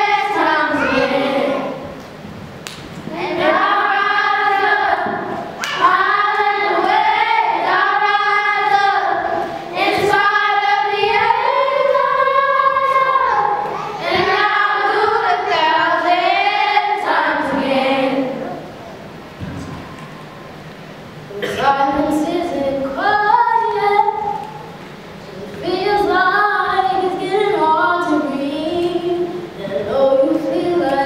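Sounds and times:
girls singing together: 0.0 - 20.4, 21.3 - 31.0.

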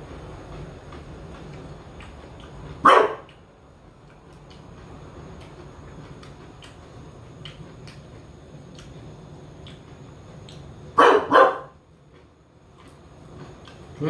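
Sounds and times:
dog barking: 2.8 - 3.3, 11.0 - 11.8.

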